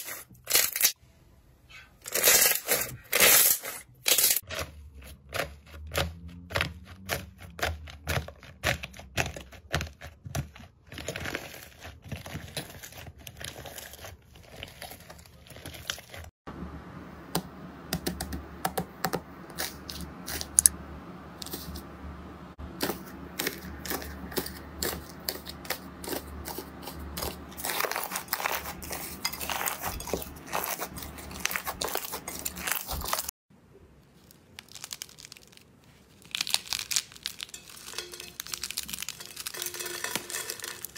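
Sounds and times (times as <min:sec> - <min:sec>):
crackling of dried slime and clay: 0:02.0 - 0:16.3, 0:22.8 - 0:40.9.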